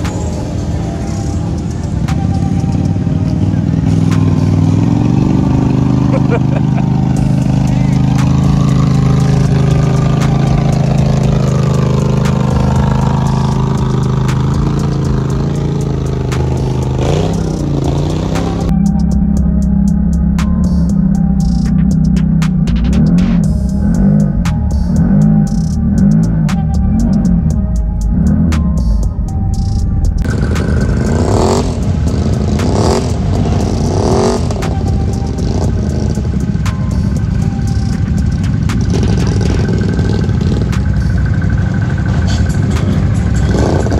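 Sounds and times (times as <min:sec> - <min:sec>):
atv engine running: 0:00.0 - 0:43.9
engine revving hard: 0:03.9 - 0:18.7, 0:30.2 - 0:36.5, 0:43.4 - 0:43.9.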